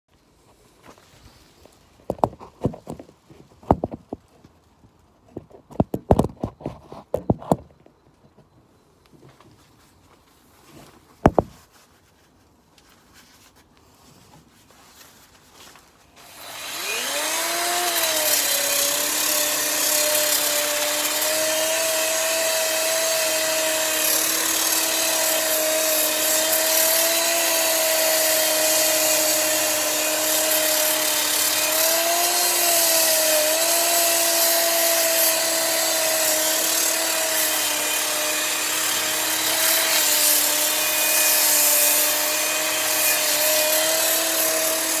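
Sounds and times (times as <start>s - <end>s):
angle grinder grinding wood: 16.1s - 45.0s.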